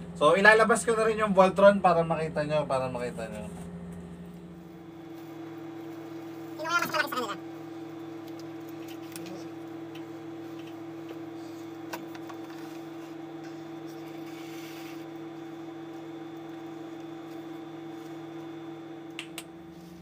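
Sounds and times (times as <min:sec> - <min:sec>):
machine-like hum: 0:00.0 - 0:20.0.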